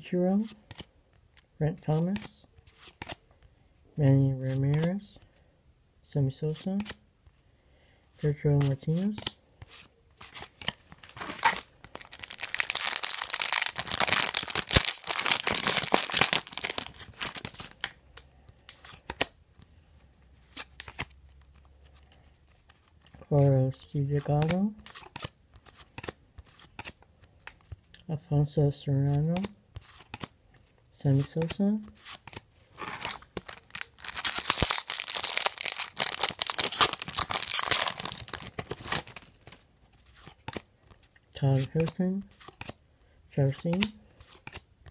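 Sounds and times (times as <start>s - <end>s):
wrapper tearing and crinkling: 11.1s - 17.8s, 32.8s - 39.5s.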